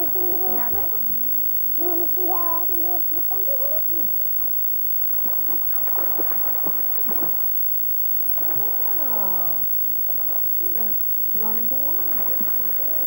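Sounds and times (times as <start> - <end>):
child calling: 0.0 - 4.2
child's voice: 0.0 - 4.2
water splashing in pool: 9.6 - 13.0.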